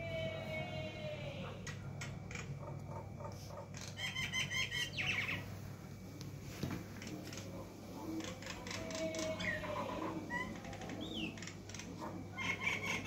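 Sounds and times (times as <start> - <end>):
mynah calling: 8.0 - 13.0.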